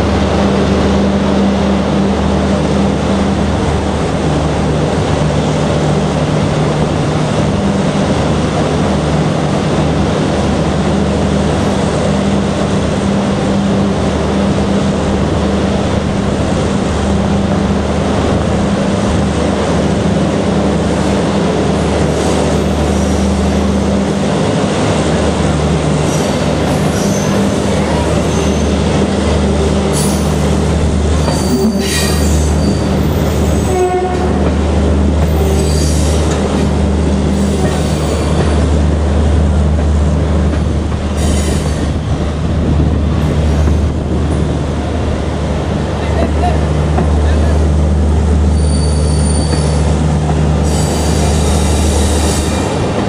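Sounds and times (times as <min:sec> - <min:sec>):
train wheels rumbling: 0:00.0 - 0:53.0
high wheel squeals: 0:31.2 - 0:34.1, 0:35.3 - 0:36.4, 0:48.5 - 0:49.9, 0:50.6 - 0:52.8.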